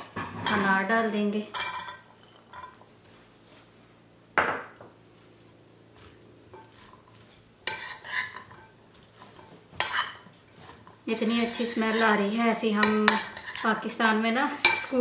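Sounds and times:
metal spoon scraping ceramic bowl: 7.6s - 8.7s, 9.3s - 10.3s, 11.1s - 12.2s, 12.8s - 13.7s.

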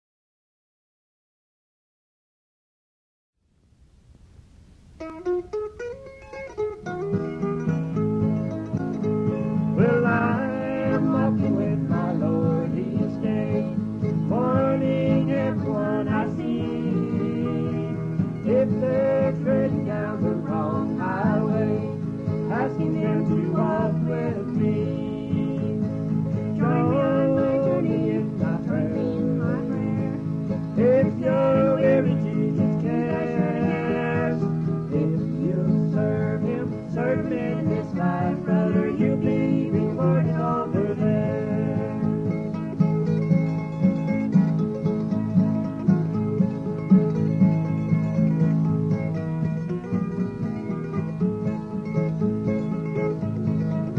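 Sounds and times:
country music with acoustic guitar: 5.0s - 53.9s.

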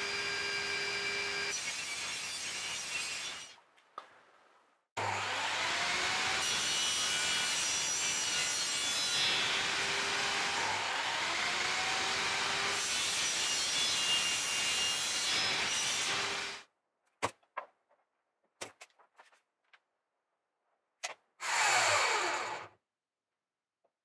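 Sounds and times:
table saw cutting wood: 0.0s - 3.5s, 5.0s - 16.6s, 21.4s - 22.8s.

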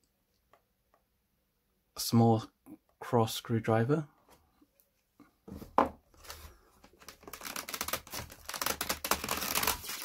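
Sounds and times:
packaging crinkling and rustling: 6.2s - 10.0s
dense crackles: 7.0s - 10.0s.

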